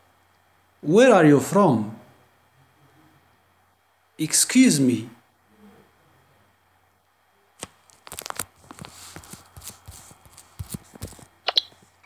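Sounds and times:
crackling and rustling: 7.6s - 12.0s.

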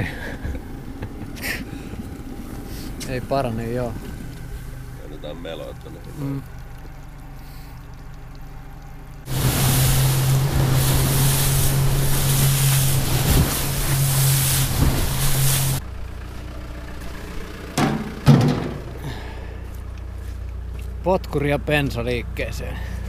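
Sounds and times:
low hum: 0.0s - 23.0s
outboard motor running: 0.0s - 23.0s
wind and water rushing: 9.3s - 15.8s.

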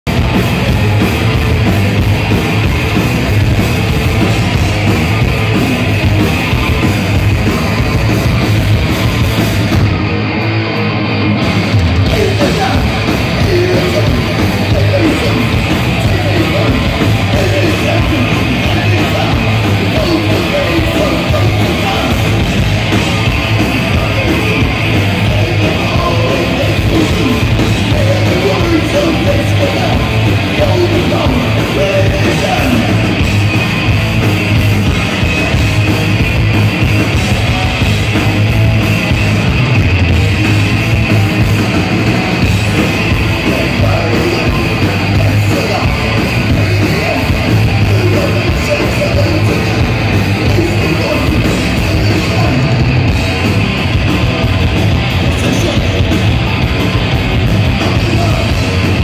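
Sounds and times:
bass guitar: 0.0s - 59.0s
distorted electric guitars: 0.0s - 59.0s
drums: 0.0s - 59.0s.

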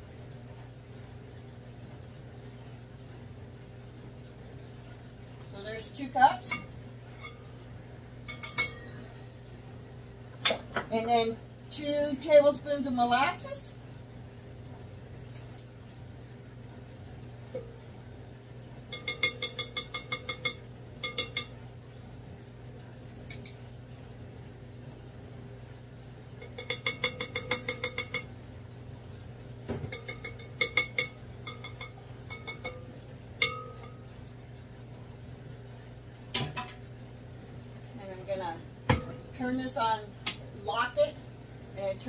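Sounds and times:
steady low hum: 0.0s - 42.0s
metal spoon clinking on glass bowl: 8.3s - 9.0s, 18.9s - 21.6s, 26.4s - 28.3s, 29.9s - 34.0s.

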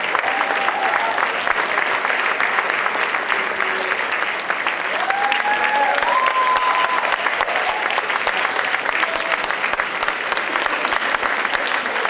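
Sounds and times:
large crowd applauding: 0.0s - 12.0s.

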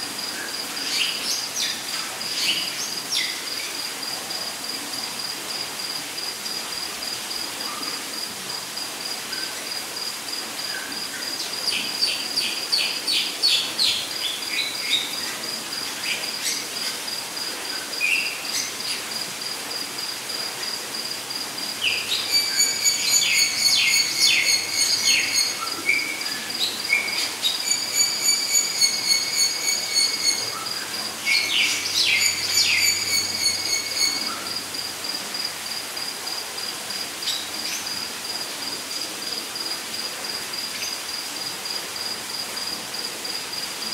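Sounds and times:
crickets trilling: 0.0s - 43.9s
birds chirping and whistling: 27.5s - 34.3s.

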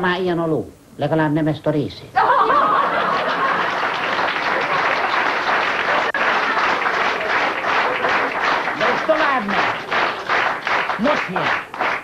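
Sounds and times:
audience applauding: 2.6s - 12.0s.

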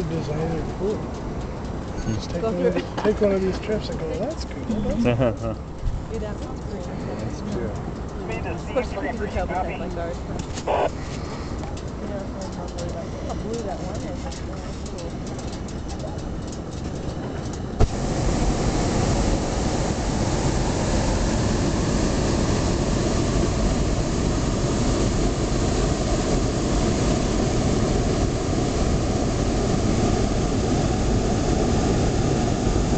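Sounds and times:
propane burner roaring: 10.6s - 32.9s.

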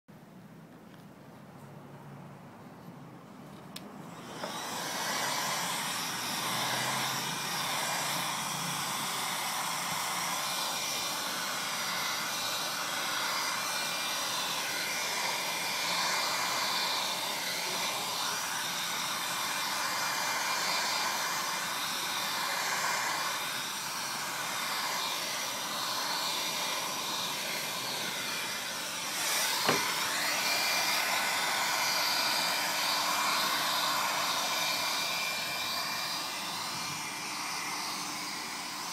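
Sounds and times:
heat gun fan blowing: 3.5s - 38.9s.

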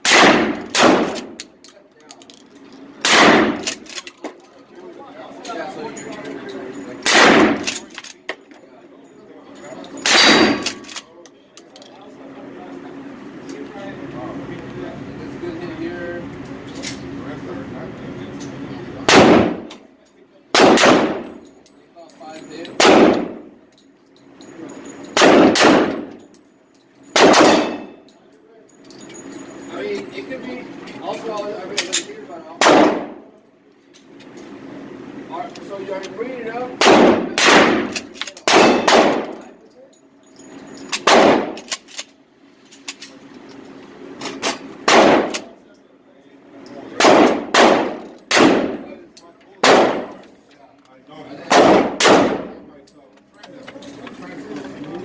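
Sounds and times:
gunshots echoing indoors: 0.0s - 1.3s, 3.0s - 3.7s, 7.1s - 7.7s, 10.1s - 10.8s, 19.0s - 19.7s, 20.5s - 21.3s, 22.8s - 23.4s, 25.2s - 26.1s, 27.1s - 27.9s, 32.6s - 33.2s, 36.8s - 39.4s, 41.0s - 41.7s, 44.8s - 45.5s, 47.0s - 48.8s, 49.6s - 50.2s, 51.5s - 52.5s.

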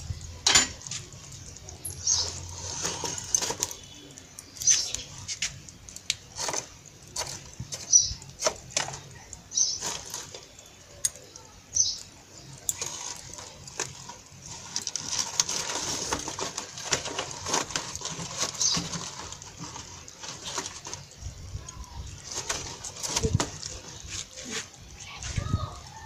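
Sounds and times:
stirring leaves in pot: 0.0s - 26.0s.

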